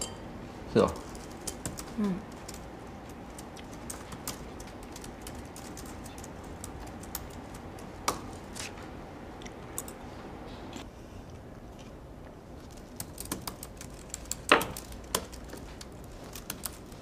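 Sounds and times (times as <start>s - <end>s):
low room hum: 0.0s - 17.0s
typing on laptop keyboard: 1.5s - 7.9s, 12.9s - 17.0s.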